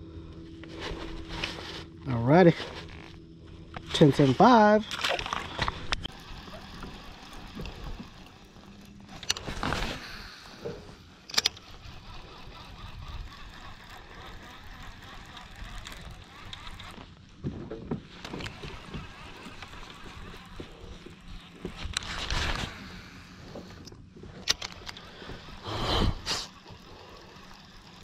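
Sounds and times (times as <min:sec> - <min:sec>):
fishing reel clicks and knocks: 0:03.8 - 0:17.1, 0:18.2 - 0:22.7, 0:23.4 - 0:28.0.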